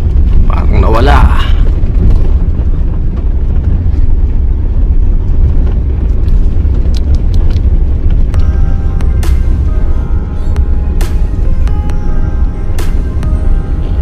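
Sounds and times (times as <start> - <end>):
vehicle low rumble: 0.0 - 14.0
music with steady tones: 8.1 - 14.0.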